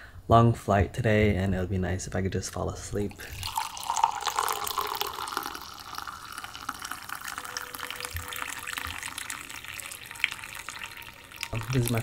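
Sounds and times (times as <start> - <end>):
water trickling into container: 3.0 - 12.0.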